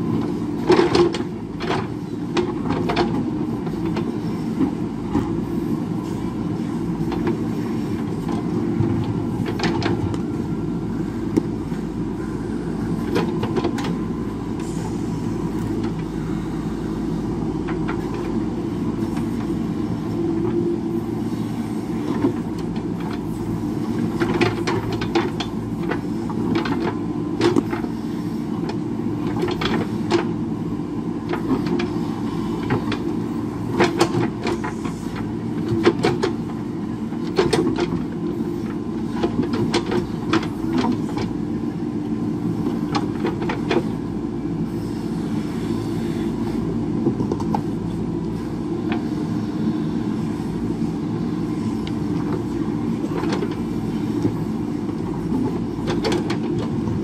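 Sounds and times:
diesel engine running under load: 0:00.0 - 0:57.0.

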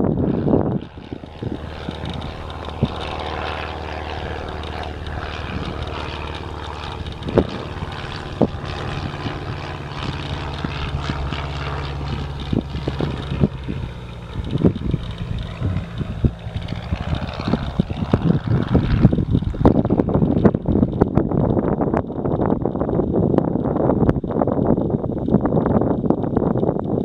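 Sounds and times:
propeller plane engine droning: 0:00.0 - 0:27.0.

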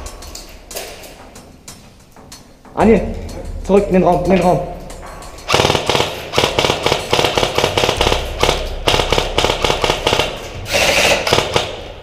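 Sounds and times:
airsoft rifles firing: 0:05.5 - 0:12.0.

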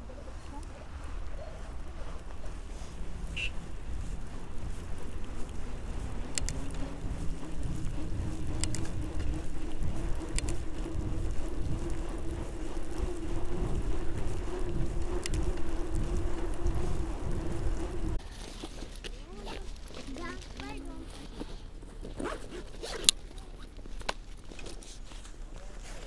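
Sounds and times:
steady hum: 0:00.0 - 0:18.2
wind on microphone: 0:00.0 - 0:18.2
bike tyres rumbling on snow: 0:00.0 - 0:26.0
sharp clicks: 0:04.2 - 0:11.0, 0:11.6 - 0:17.1.

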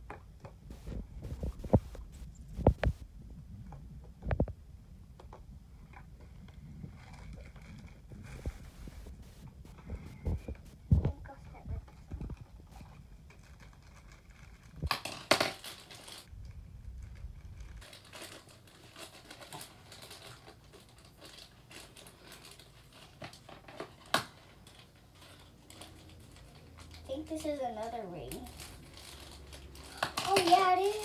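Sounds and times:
plastic wrapper crinkling: 0:11.9 - 0:31.0.

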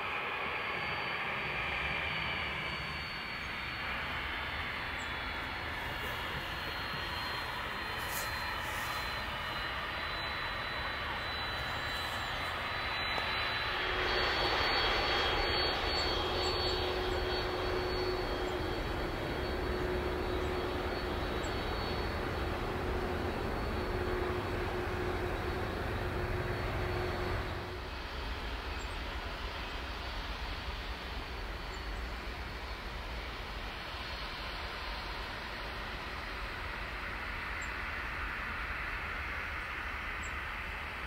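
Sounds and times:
jet engines rushing with whine: 0:00.0 - 0:41.0
steady rumble: 0:02.3 - 0:27.8.

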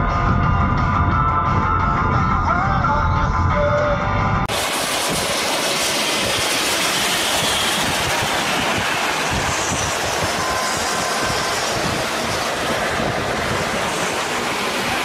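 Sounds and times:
music: 0:00.0 - 0:04.5
road noise of fast vehicles: 0:04.4 - 0:15.0.

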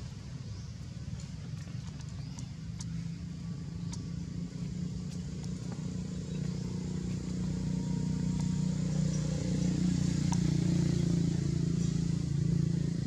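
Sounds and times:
motor engine humming: 0:00.0 - 0:13.0
faint high ticks: 0:01.2 - 0:06.6, 0:10.1 - 0:11.2.

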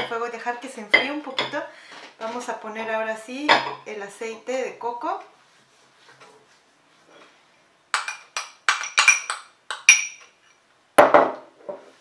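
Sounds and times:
metal spoon clinking on glass bowl: 0:08.0 - 0:10.4.

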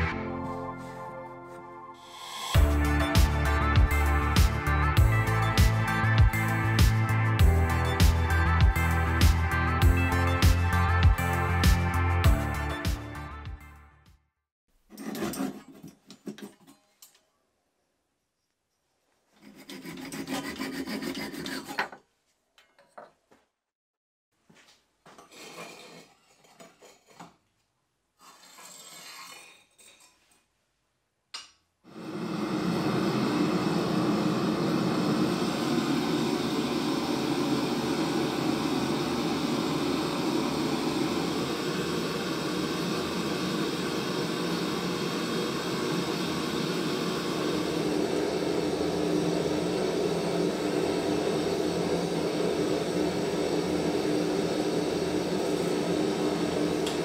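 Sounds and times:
brick scrapes and clinks: 0:14.9 - 0:17.0, 0:25.1 - 0:27.5, 0:28.2 - 0:30.4
gas forge rushing: 0:31.9 - 0:57.0.

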